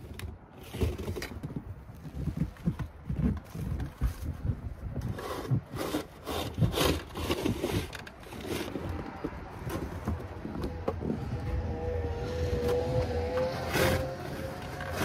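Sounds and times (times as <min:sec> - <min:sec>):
snow shovel scraping: 0:05.1 - 0:09.0, 0:12.4 - 0:15.0.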